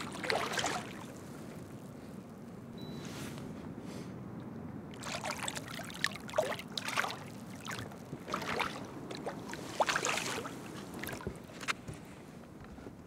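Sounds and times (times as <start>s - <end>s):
fish splashing at water surface: 0.0s - 1.2s.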